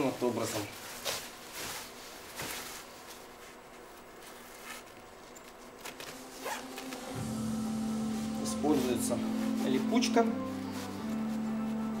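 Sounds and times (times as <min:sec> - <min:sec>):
fabric rustling: 0:00.0 - 0:12.0.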